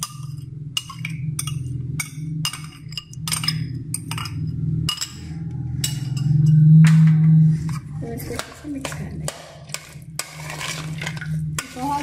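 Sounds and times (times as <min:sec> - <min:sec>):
metal spoon clinking against bowl: 0:00.0 - 0:06.7
steady low hum: 0:00.0 - 0:12.0.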